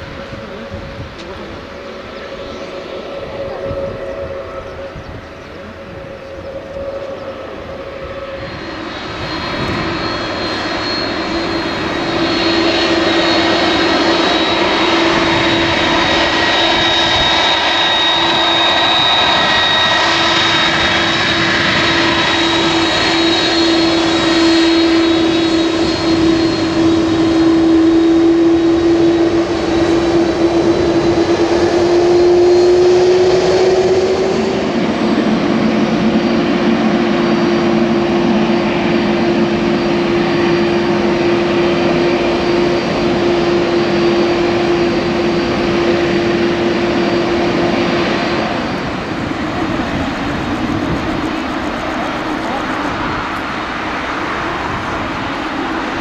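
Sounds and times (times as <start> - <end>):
jet engine whine: 0.0 - 56.0.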